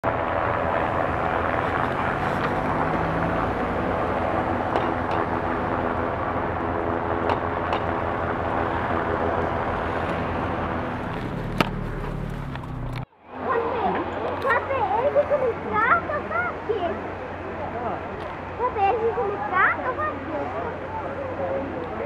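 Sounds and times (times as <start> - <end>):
traffic hum: 0.0 - 22.0.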